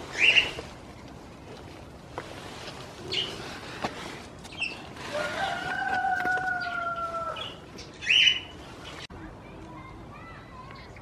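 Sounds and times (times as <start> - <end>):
high bird chirps: 6.6 - 9.1.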